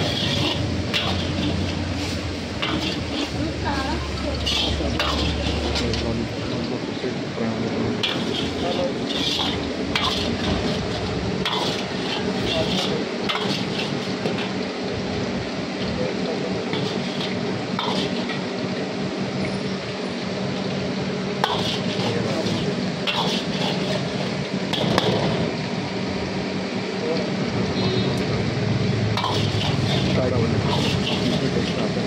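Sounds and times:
ladle scraping a steel wok: 0.0s - 6.5s, 7.9s - 14.7s, 16.6s - 18.6s, 21.4s - 25.5s, 29.0s - 32.0s
liquid poured into wok: 0.0s - 27.7s, 28.4s - 32.0s
steady hiss of cooking: 0.0s - 32.0s.

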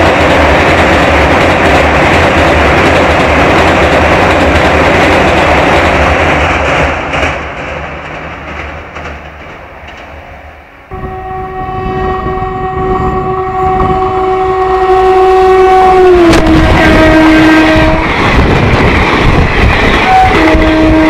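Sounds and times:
train coaches rushing and clattering: 0.0s - 10.9s, 11.8s - 21.0s
locomotive horn blast: 10.9s - 18.1s, 20.0s - 21.0s.

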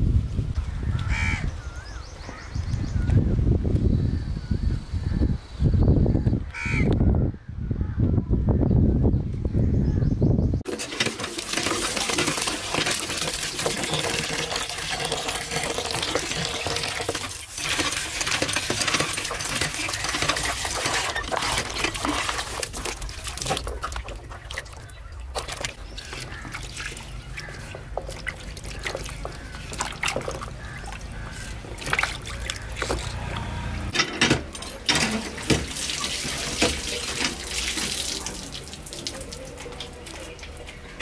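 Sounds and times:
water stream splashing into tub: 10.6s - 40.8s
hands rubbing cucumbers in water: 10.8s - 33.8s.

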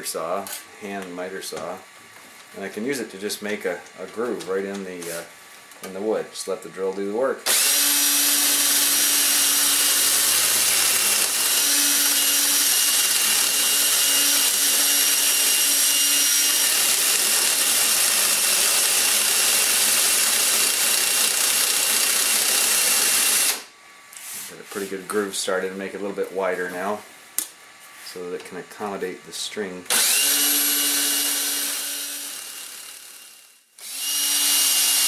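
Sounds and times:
cordless drill running: 7.4s - 23.7s, 29.9s - 35.0s.

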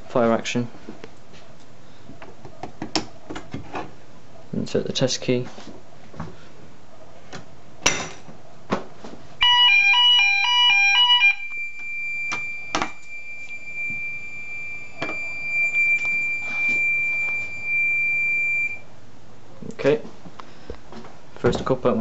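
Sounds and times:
steady high-pitched alarm tone: 9.4s - 18.8s
two-tone fire alarm warble: 9.4s - 18.8s.

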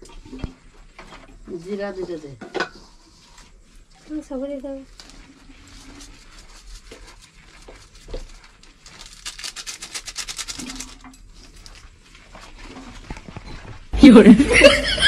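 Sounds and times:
hands mixing flour in steel bowl: 0.0s - 9.2s.

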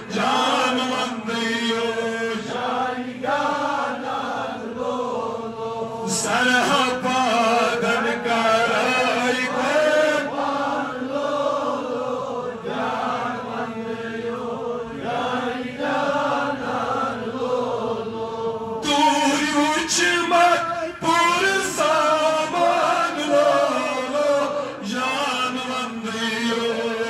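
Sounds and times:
man chanting devotional poem: 0.0s - 3.0s, 5.9s - 10.5s, 18.8s - 27.0s.

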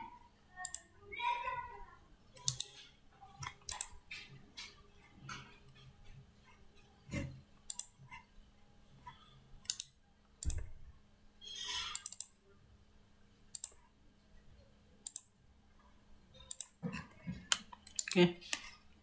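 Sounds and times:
computer mouse clicking: 0.6s - 0.9s, 2.4s - 2.8s, 3.4s - 4.0s, 7.6s - 8.0s, 9.6s - 10.7s, 11.9s - 12.4s, 13.5s - 13.8s, 15.0s - 15.3s, 16.5s - 16.8s, 17.5s - 18.7s.

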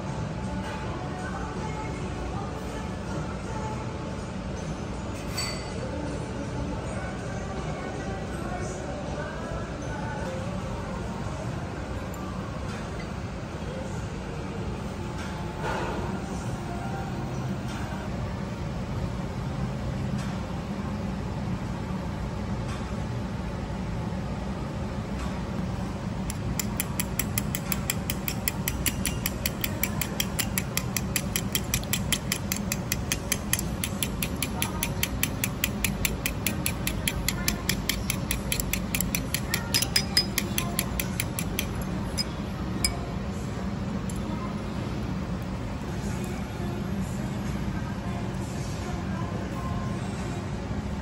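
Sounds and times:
low room hum: 0.0s - 51.0s
chopsticks clicking against bowl: 26.3s - 42.3s.

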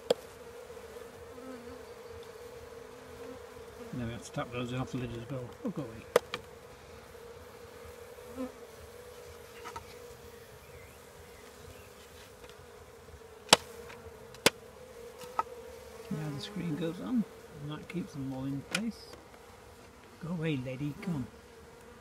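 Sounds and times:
hive lid being tapped: 0.0s - 0.2s, 5.1s - 6.5s
bees buzzing: 0.0s - 22.0s.

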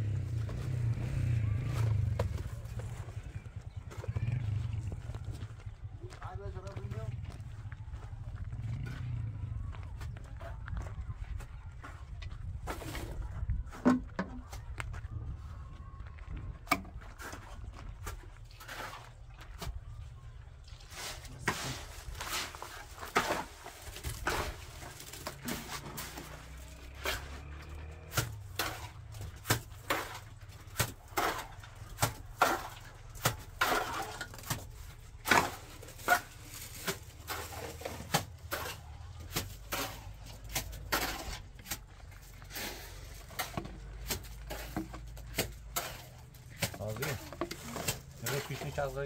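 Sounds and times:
knocks and scrapes of hand work: 21.0s - 48.9s.

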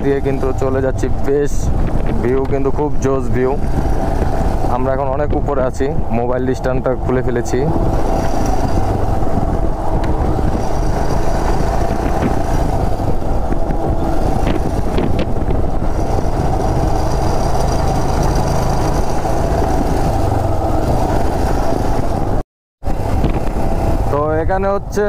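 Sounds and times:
road and wind noise: 0.0s - 25.0s
motorcycle engine running: 3.4s - 5.4s, 7.7s - 24.1s.

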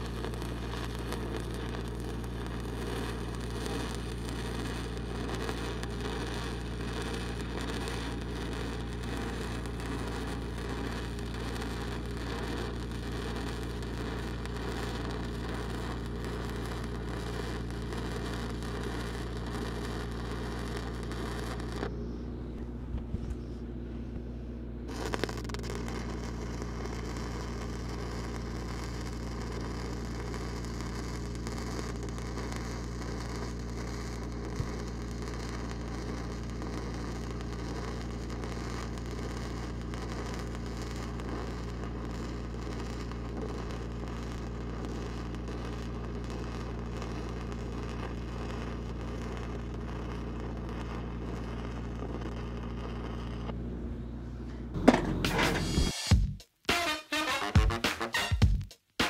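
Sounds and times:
welding arc crackling: 0.0s - 21.9s, 24.9s - 53.6s, 54.7s - 59.0s
low engine hum: 17.8s - 28.5s.

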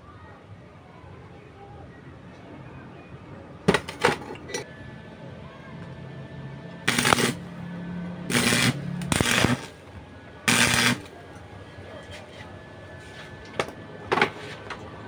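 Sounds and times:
low hum: 4.7s - 11.2s
welding arc crackling: 6.9s - 7.5s, 8.2s - 11.2s.

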